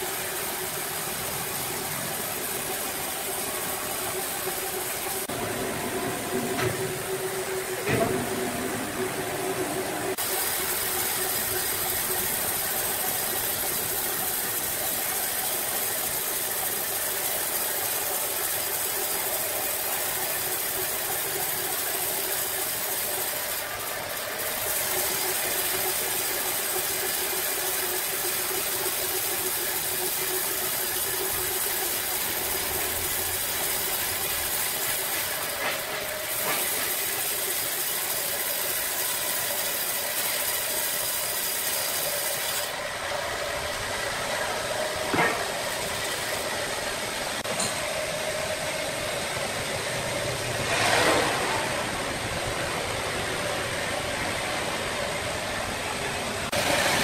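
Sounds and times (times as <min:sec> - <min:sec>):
band sawmill cutting log: 0:06.2 - 0:47.5.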